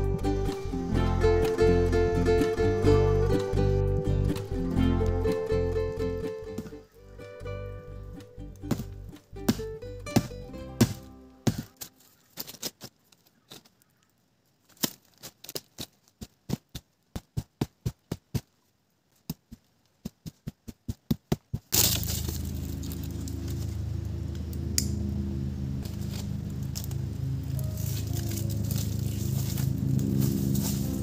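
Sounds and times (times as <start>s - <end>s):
music with low beat: 0.0s - 11.3s.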